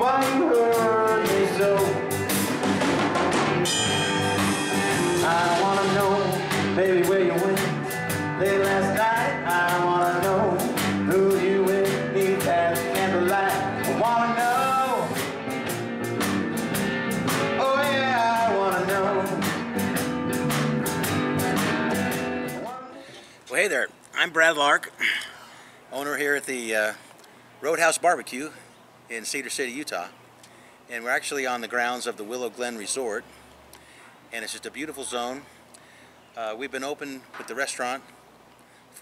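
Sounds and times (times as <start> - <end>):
country-rock song: 0.0 - 24.8.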